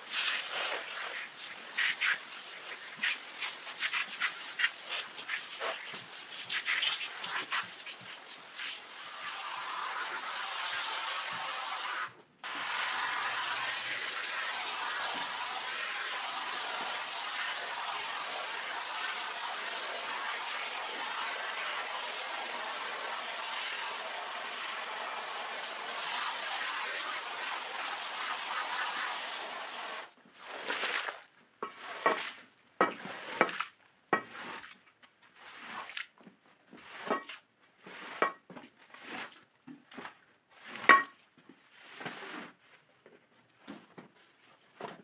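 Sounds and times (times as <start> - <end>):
hose nozzle spraying water: 0.0 - 32.4
scraper squeezing water from rug: 0.0 - 42.9.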